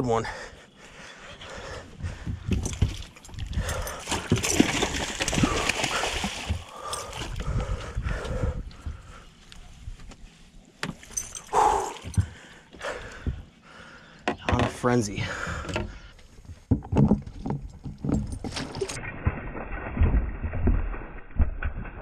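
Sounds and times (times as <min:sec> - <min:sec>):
fish thrashing and splashing: 0:02.5 - 0:07.5.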